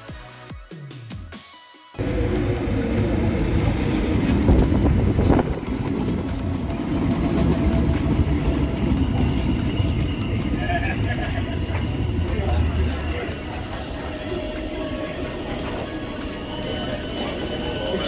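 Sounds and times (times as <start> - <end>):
train rumble: 2.0 - 18.0.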